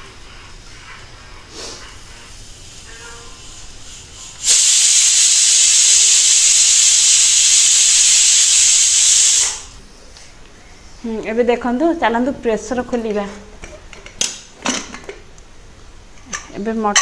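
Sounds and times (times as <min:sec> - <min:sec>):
pressure cooker hissing steam: 0:01.5 - 0:09.8.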